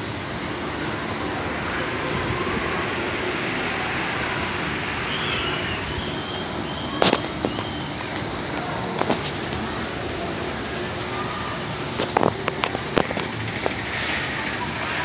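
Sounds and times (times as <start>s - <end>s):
amusement park train rushing: 0.0s - 15.0s.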